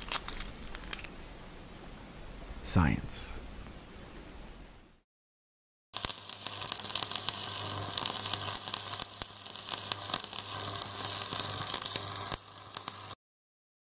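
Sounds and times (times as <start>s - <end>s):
sparks sizzling crackle: 0.0s - 1.2s, 6.0s - 13.2s.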